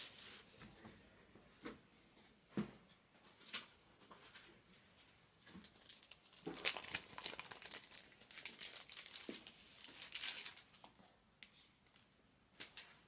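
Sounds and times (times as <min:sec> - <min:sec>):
plastic wrapper crinkling and tearing: 0:05.5 - 0:12.1.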